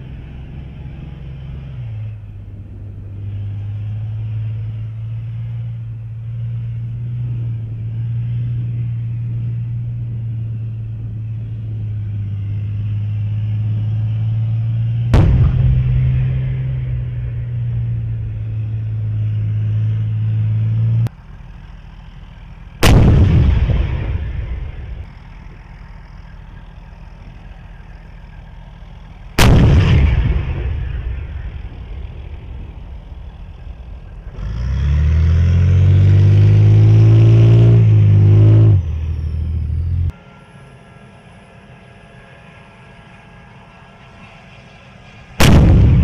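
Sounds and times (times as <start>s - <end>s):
tank engine droning: 0.0s - 46.0s
tank cannon firing: 15.1s - 18.2s, 22.8s - 25.2s, 29.4s - 34.2s, 45.4s - 46.0s.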